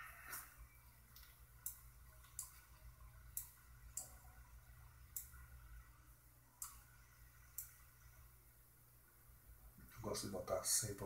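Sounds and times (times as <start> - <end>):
faint low hum: 0.0 - 11.0
computer mouse clicking: 0.3 - 2.7, 6.6 - 6.9, 7.5 - 7.9.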